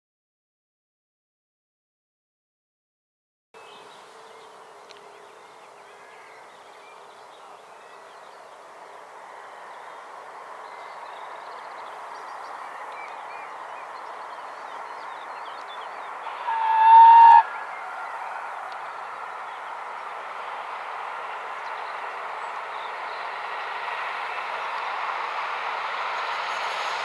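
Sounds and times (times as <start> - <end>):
birds chirping: 3.6 - 25.5
train rushing past: 16.0 - 27.0
steam whistle blast: 16.3 - 17.9.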